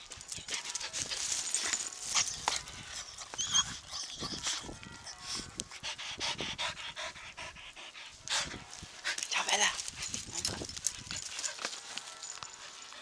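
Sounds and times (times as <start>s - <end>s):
dog panting and snuffling: 5.4s - 11.9s.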